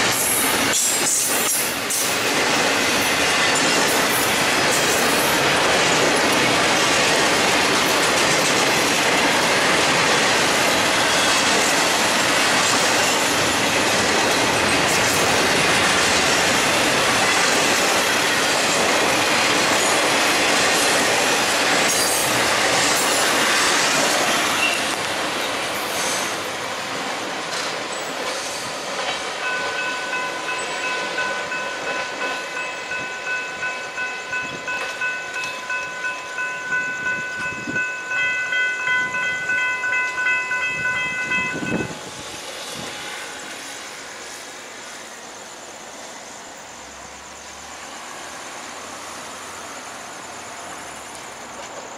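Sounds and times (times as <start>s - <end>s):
railroad crossing bells ringing: 0.0s - 25.6s, 28.9s - 44.0s.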